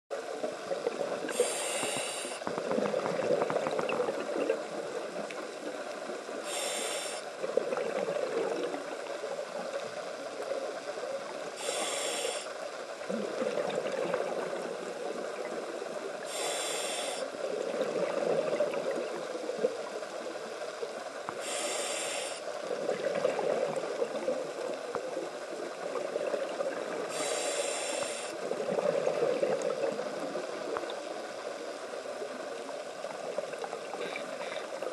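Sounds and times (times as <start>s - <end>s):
regulator inhalation hiss: 1.3s - 2.4s, 6.4s - 7.4s, 11.5s - 12.7s, 16.2s - 17.4s, 21.3s - 22.7s, 27.0s - 28.4s.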